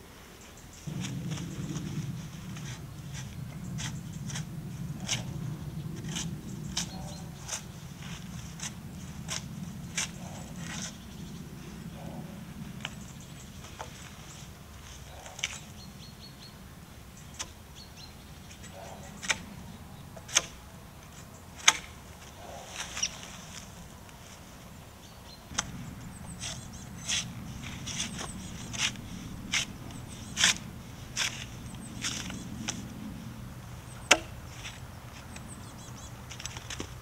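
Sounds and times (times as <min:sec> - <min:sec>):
low steady hum: 0:00.0 - 0:37.0
tool knocking bark off log: 0:34.1 - 0:34.3.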